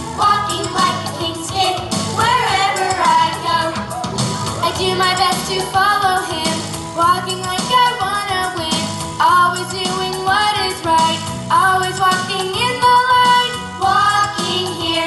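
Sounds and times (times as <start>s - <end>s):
pop song with vocals: 0.0s - 15.0s.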